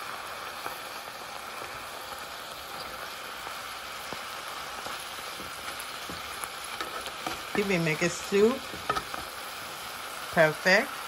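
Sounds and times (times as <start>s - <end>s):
greens simmering in a pan: 0.0s - 11.0s
wooden spatula tapping: 5.2s - 9.4s.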